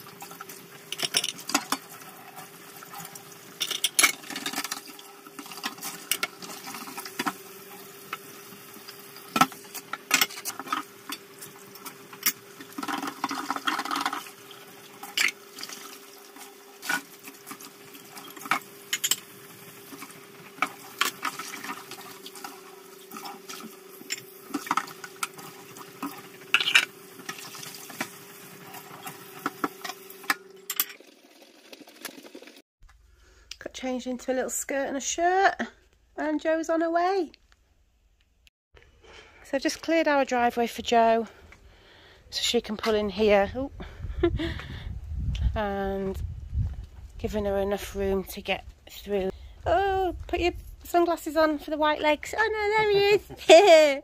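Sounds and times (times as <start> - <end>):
dishes clinking against sink: 0.9 - 1.9, 26.5 - 27.4.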